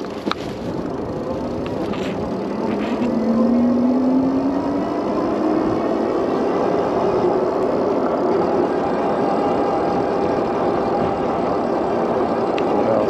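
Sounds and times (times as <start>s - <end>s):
tyre hum: 0.0s - 3.8s
faint steady tones: 0.0s - 13.0s
rushing wind: 0.0s - 13.0s.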